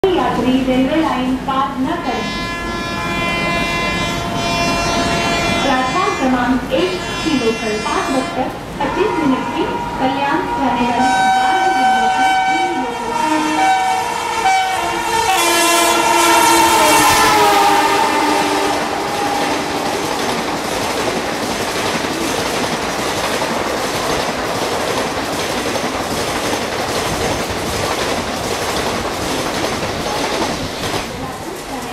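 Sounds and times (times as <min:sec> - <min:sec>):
locomotive twin-tone horn: 0:02.1 - 0:22.6
train wheels clattering over rail joints: 0:18.8 - 0:31.7.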